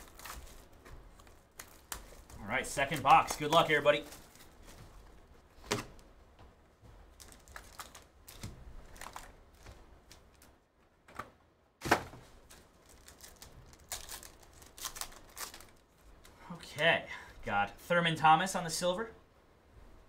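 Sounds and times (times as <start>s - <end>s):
cardboard and wrapper crinkling: 0.0s - 6.0s, 7.0s - 10.6s, 11.8s - 16.3s.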